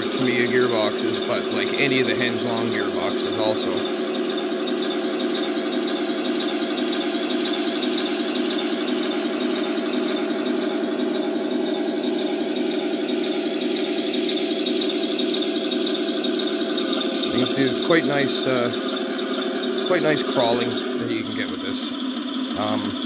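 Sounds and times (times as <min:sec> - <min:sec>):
gearbox whine: 0:00.0 - 0:23.0
tank engine sound from speaker: 0:00.0 - 0:23.0.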